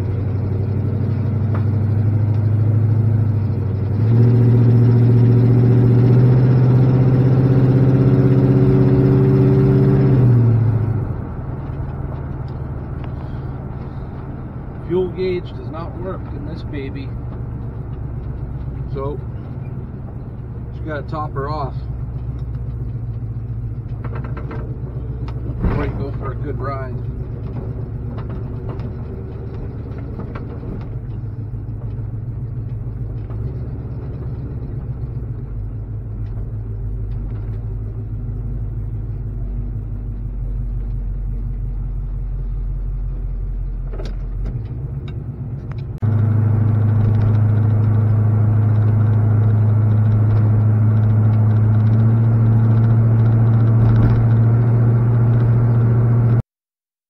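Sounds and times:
truck engine running: 0.0s - 56.4s.

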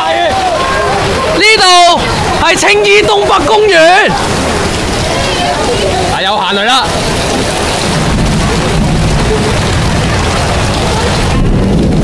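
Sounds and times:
torrential rain pouring: 0.0s - 12.0s
wind buffeting microphone: 6.9s - 12.0s.

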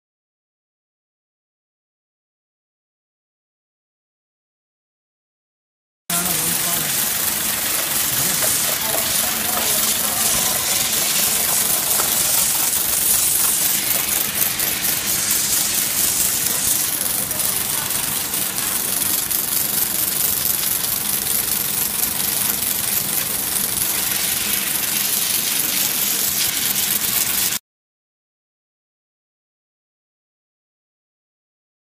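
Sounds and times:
high-pressure water jet hissing: 6.1s - 27.6s.

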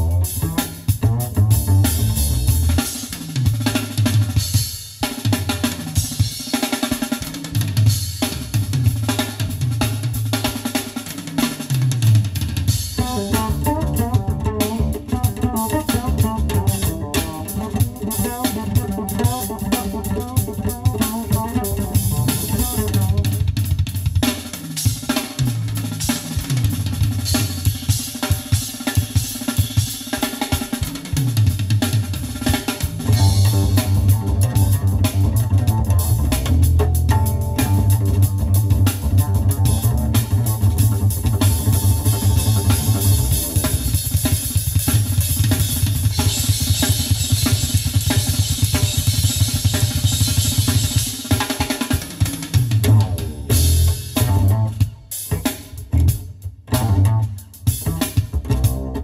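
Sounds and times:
strong bass line: 0.0s - 3.0s, 13.0s - 23.7s, 33.0s - 44.2s, 52.8s - 59.0s
busy drum kit: 0.0s - 59.0s
melodic passage: 37.0s - 43.4s.

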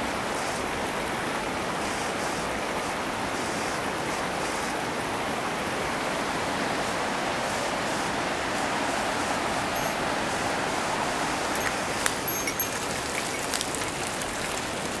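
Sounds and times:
water flowing over rocks: 0.0s - 15.0s
footsteps through dry undergrowth: 11.5s - 15.0s.

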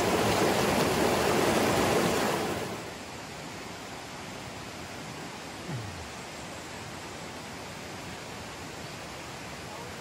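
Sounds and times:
river rushing over boulders: 0.0s - 10.0s.

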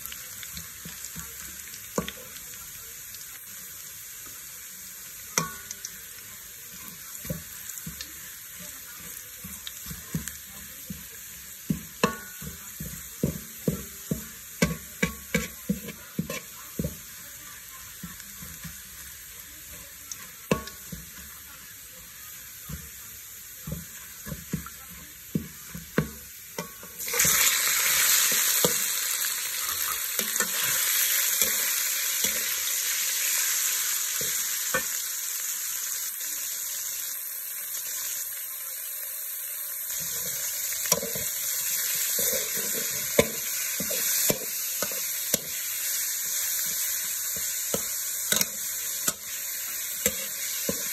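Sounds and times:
garlic frying in oil: 0.0s - 50.9s
loud sizzle of meat in oil: 0.0s - 50.9s
metal spatula scraping a wok: 14.6s - 16.9s.

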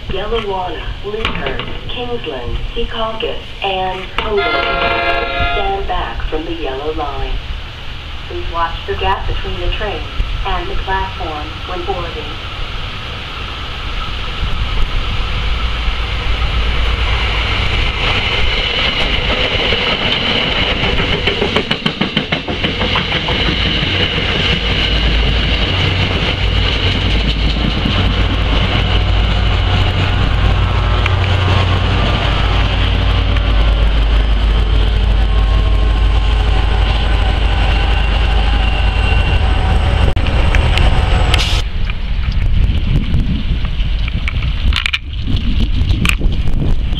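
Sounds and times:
diesel locomotive rumble: 0.0s - 45.1s
wheels clicking over rail joints: 17.6s - 35.6s
high whine: 23.0s - 43.6s.

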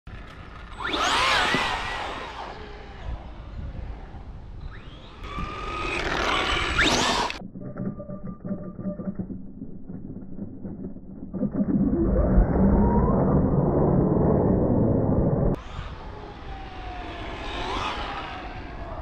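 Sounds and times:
electric motor whining: 0.4s - 7.4s, 15.6s - 19.0s.

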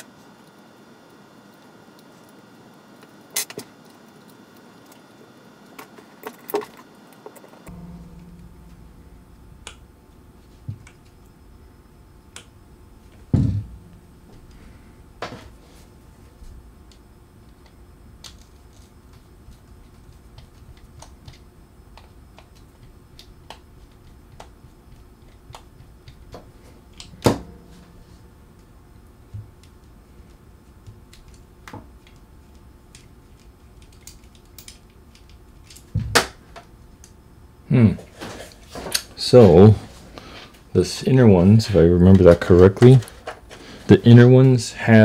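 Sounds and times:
louder knocks: 7.7s - 11.7s, 13.3s - 15.6s.

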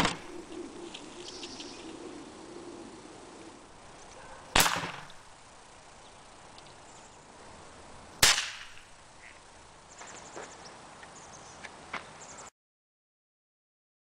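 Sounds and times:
air rifle shots: 0.0s - 0.6s, 4.5s - 5.3s, 8.2s - 9.0s.

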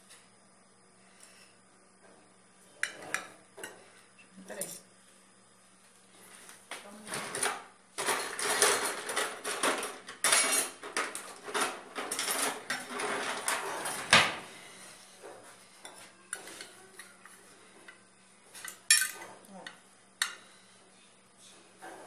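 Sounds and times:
cutlery and dishes clattering: 7.2s - 14.1s, 18.6s - 19.4s
utensils clinking on ceramic dish: 8.0s - 13.6s, 18.6s - 19.3s.

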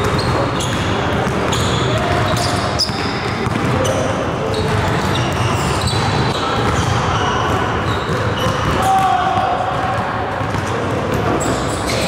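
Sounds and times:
basketball bouncing on wooden floor: 0.0s - 3.8s, 9.7s - 11.3s
sneaker squeaks: 0.0s - 9.4s, 10.4s - 12.0s.

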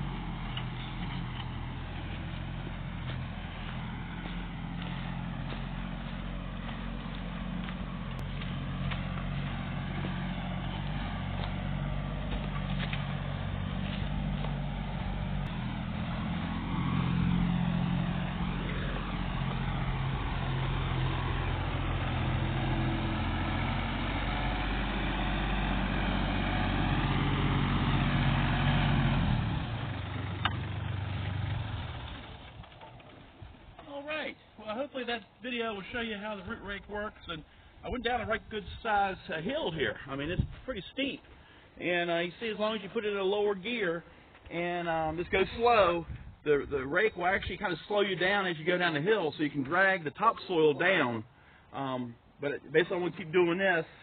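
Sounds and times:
diesel tractor engine running: 0.0s - 41.4s.

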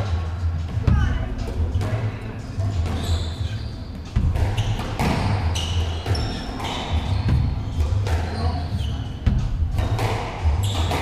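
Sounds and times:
shoes squeaking on wooden floor: 1.8s - 11.0s
squash ball smacking: 4.1s - 8.5s, 9.1s - 11.0s.

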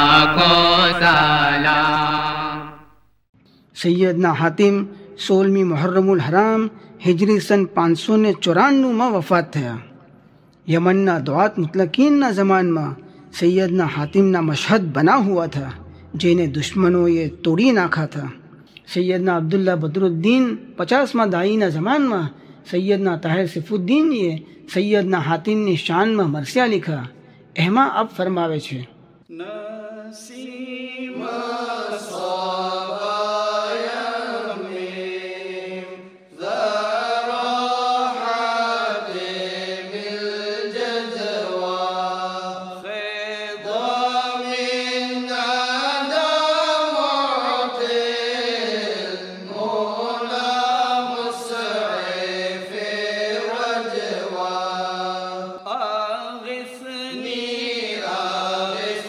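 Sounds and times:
person chanting unaccompanied: 0.0s - 2.9s, 29.3s - 59.0s.

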